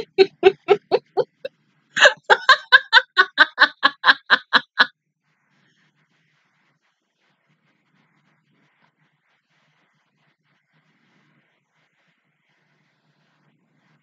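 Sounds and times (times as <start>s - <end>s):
woman laughing: 0.0s - 4.9s.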